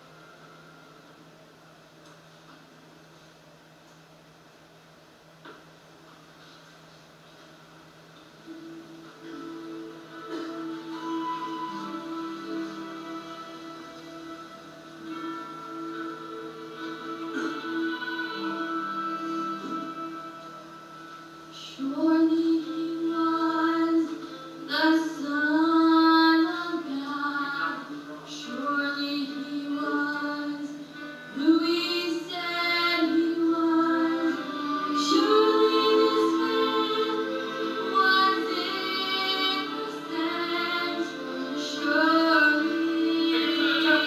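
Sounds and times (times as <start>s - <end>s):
music through television speaker: 0.0s - 3.3s, 5.4s - 44.0s
woman singing long held notes: 10.5s - 44.0s.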